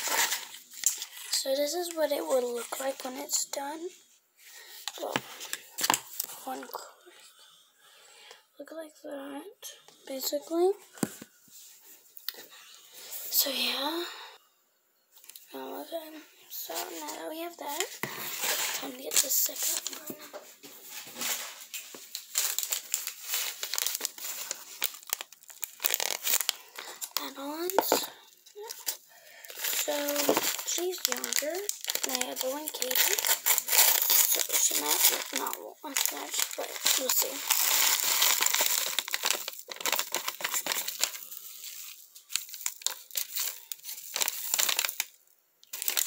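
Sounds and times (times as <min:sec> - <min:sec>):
paper packet crinkling: 0:00.0 - 0:03.4, 0:16.6 - 0:46.0.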